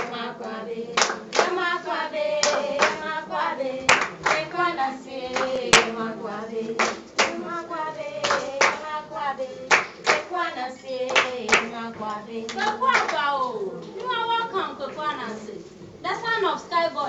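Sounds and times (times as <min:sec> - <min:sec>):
group singing a chant: 0:00.0 - 0:13.2
hand claps: 0:01.0 - 0:01.6, 0:02.4 - 0:03.1, 0:03.9 - 0:04.6, 0:05.3 - 0:06.0, 0:06.8 - 0:07.6, 0:08.2 - 0:08.9, 0:09.7 - 0:10.4, 0:11.1 - 0:11.8, 0:12.5 - 0:13.2.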